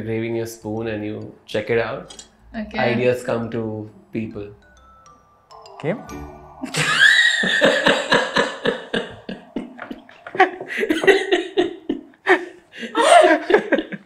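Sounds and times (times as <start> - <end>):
group laughing: 6.7 - 14.0.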